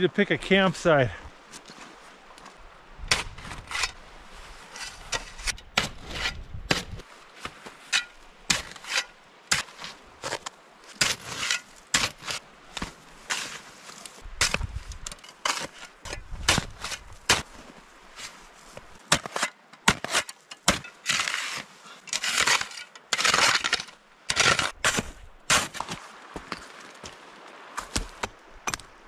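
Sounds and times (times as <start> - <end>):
metal shovel crunching into snow: 3.1 - 26.8
shovel blade scraping: 4.6 - 7.0, 7.8 - 17.5, 19.0 - 26.0.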